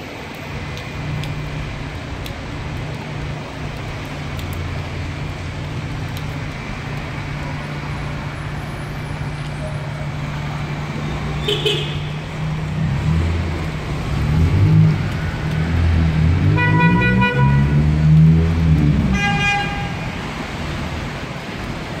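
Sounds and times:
traffic on wet street: 0.0 - 22.0
vehicle horn toot: 11.4 - 12.1
higher-pitched horn: 16.4 - 17.9.

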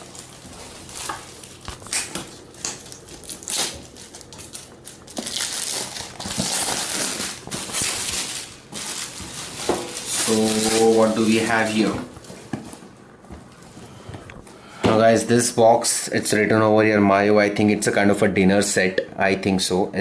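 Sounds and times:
foil wrap crinkling and tearing: 0.0 - 12.7.

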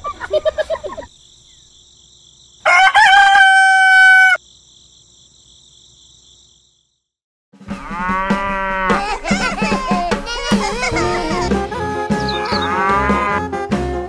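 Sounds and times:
rooster crowing: 2.6 - 4.4.

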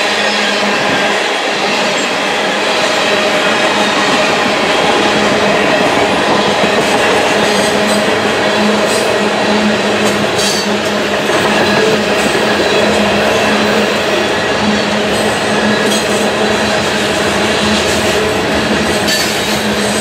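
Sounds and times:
train wheels rolling on rails: 0.0 - 20.0.

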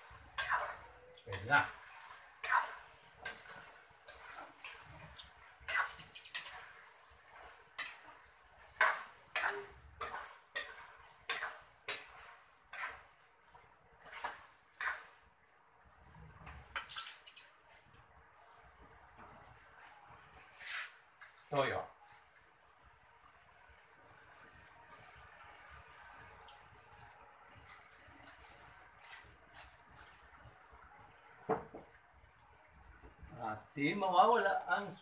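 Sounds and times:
metal utensil scraping frying pan: 0.0 - 13.2, 14.0 - 15.2.

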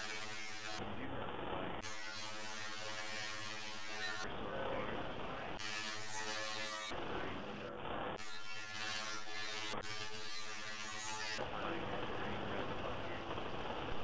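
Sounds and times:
rough hiss-like noise: 0.0 - 8.2
buzzing drone: 0.0 - 14.0.

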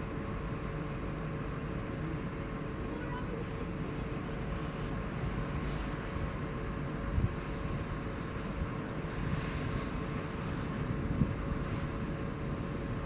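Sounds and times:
jet engines rumbling: 0.0 - 13.0
wind buffeting microphone: 4.4 - 13.0.

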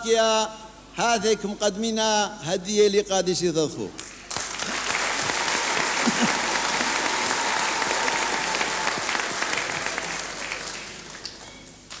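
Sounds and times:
congregation applauding: 4.0 - 12.0.

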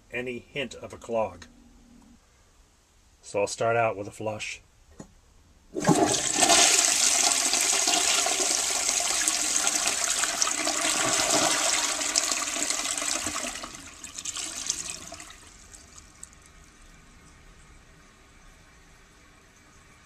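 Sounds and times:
toilet flushing: 5.7 - 17.0.

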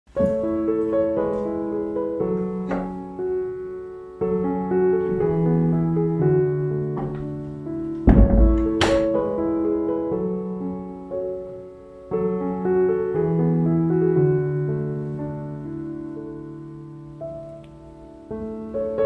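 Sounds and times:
piano music: 0.1 - 19.0
low thump: 8.0 - 9.1.

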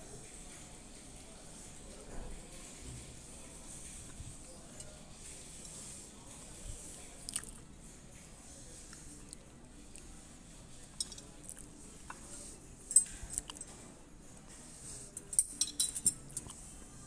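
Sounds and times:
tableware clinking: 10.9 - 11.4, 15.2 - 16.6.

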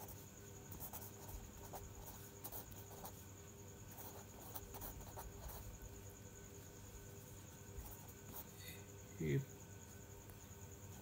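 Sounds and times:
pen scratching on paper: 0.0 - 3.2, 3.9 - 5.8, 7.8 - 8.5
faint steady hum: 0.0 - 11.0.

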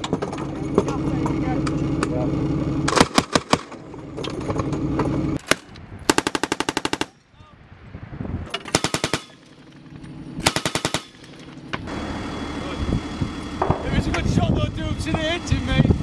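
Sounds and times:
vehicle engine idling: 0.0 - 5.4
machine gun firing: 2.9 - 3.7, 5.4 - 7.2, 8.7 - 9.4, 10.4 - 11.3.

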